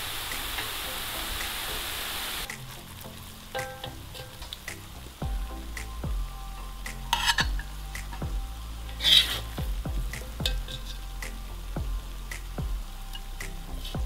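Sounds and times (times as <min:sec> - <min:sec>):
food sizzling faintly: 0:00.0 - 0:14.0
metal spatula scraping pot: 0:03.5 - 0:04.7, 0:06.6 - 0:07.8, 0:08.9 - 0:09.6, 0:10.4 - 0:11.2.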